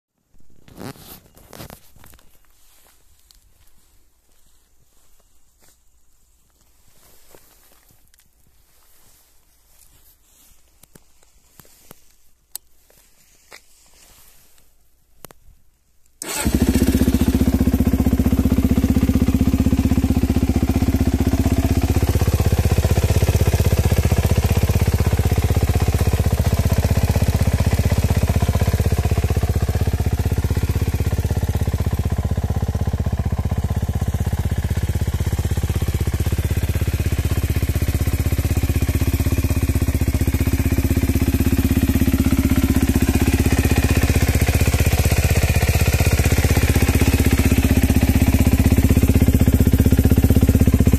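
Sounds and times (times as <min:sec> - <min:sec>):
motorcycle engine idling: 0:16.2 - 0:50.9.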